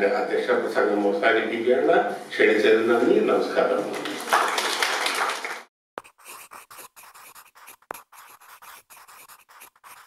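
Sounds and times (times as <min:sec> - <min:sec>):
audience applauding: 0:03.9 - 0:05.7
faint scratching strokes: 0:06.0 - 0:10.0.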